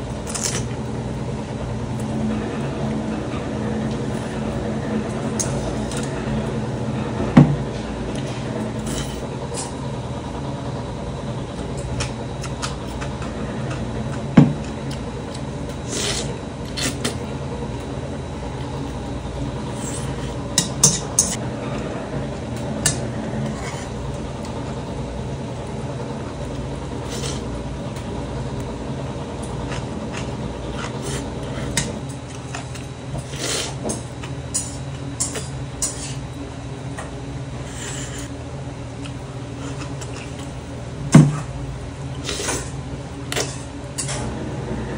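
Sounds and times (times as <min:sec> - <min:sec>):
steady background hum: 0:00.0 - 0:44.9
eating and slurping: 0:14.8 - 0:17.2, 0:27.0 - 0:27.5, 0:29.5 - 0:34.3, 0:39.0 - 0:40.6, 0:42.1 - 0:44.3.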